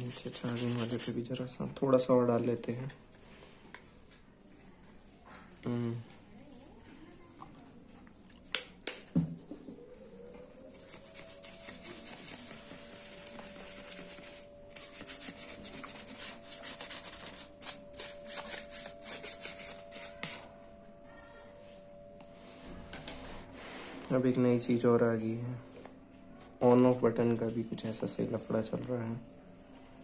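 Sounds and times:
small brush scrubbing: 0.0s - 1.2s, 10.7s - 20.5s.

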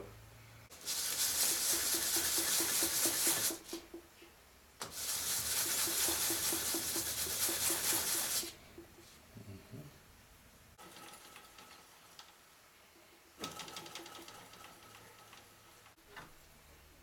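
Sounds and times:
sandpaper scraping: 0.7s - 3.9s, 4.8s - 8.6s.

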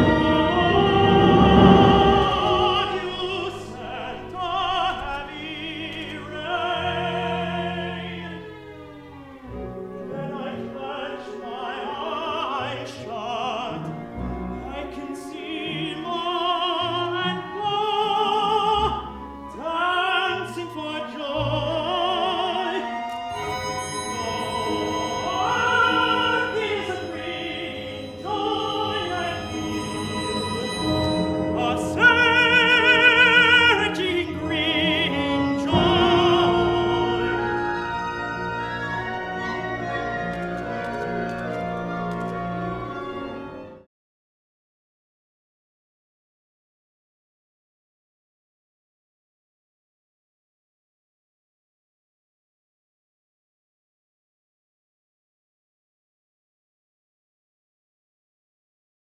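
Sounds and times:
man singing opera: 0.0s - 8.8s, 10.1s - 40.0s
orchestra sustained notes: 0.0s - 12.2s, 23.3s - 43.7s.

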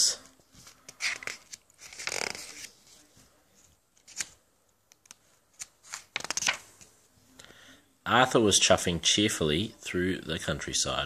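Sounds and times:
book page turning: 0.4s - 6.9s.

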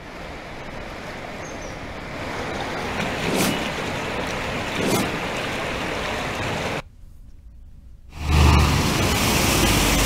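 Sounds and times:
steady rushing noise: 0.0s - 6.9s.

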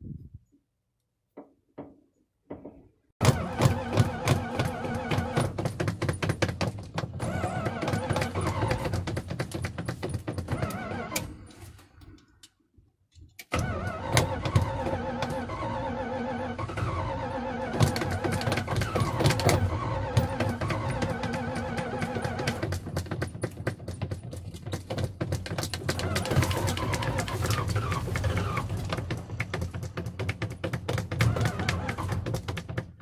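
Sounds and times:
engine cranking and running: 3.2s - 12.3s, 13.4s - 33.0s.

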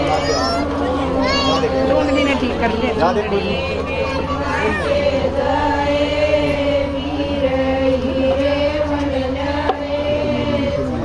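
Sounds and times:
voices chanting in unison: 0.0s - 11.0s.

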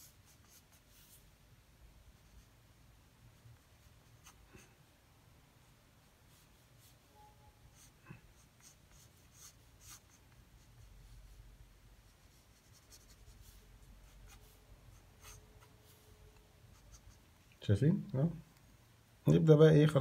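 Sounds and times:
pencil scratching on paper: 0.0s - 1.2s, 3.6s - 4.8s, 7.7s - 11.4s, 12.1s - 16.1s, 16.7s - 17.2s.

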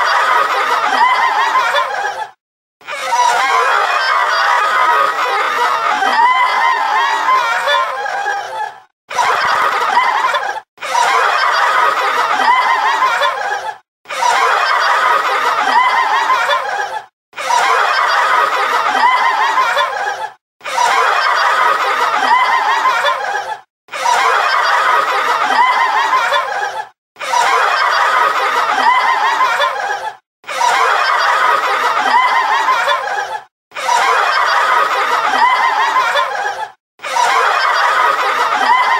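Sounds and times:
people laughing: 0.0s - 38.9s.

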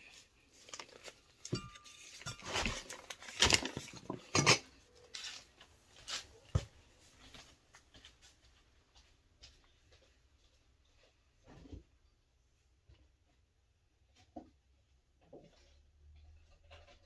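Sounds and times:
dishes and utensils clattering: 1.4s - 4.8s.

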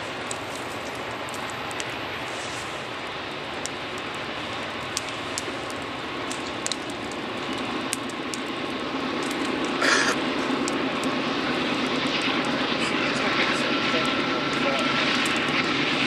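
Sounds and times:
loud hiss: 9.8s - 10.2s.

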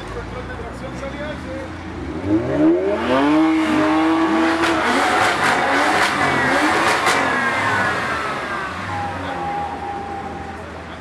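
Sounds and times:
car engine revving high: 1.9s - 10.6s.

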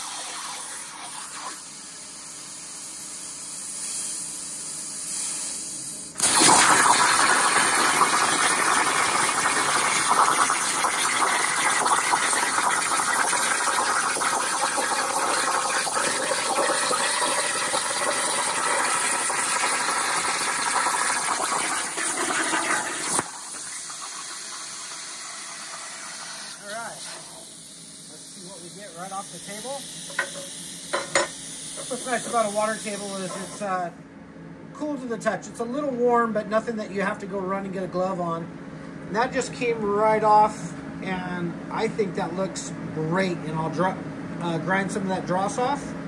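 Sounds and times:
plasma arc hissing harshly: 0.0s - 33.9s
quiet steam hiss: 23.2s - 34.0s.

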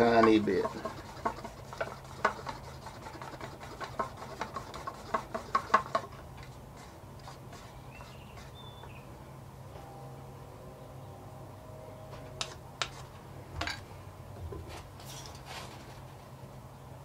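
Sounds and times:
stick stirring paint in cup: 0.0s - 8.9s.

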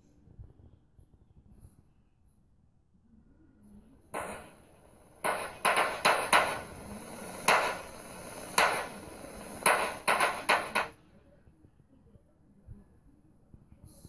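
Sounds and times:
sharp knocks: 4.2s - 4.6s, 5.2s - 10.9s.

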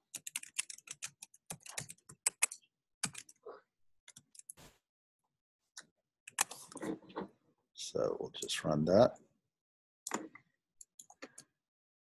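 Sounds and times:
typing on computer keyboard: 0.0s - 3.4s.

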